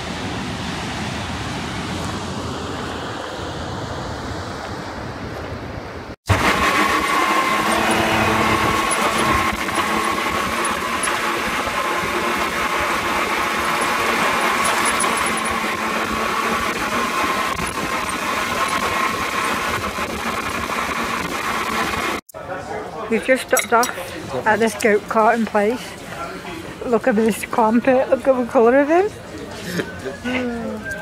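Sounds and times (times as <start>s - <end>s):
wind: 0.0s - 31.0s
buggy engine running: 6.3s - 22.2s.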